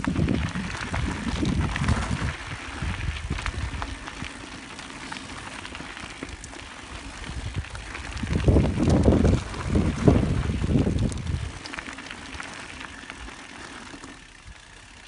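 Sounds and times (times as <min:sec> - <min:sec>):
wind buffeting microphone: 0:00.0 - 0:04.5, 0:06.3 - 0:11.7
tyres crackling on rough trail: 0:00.0 - 0:15.0.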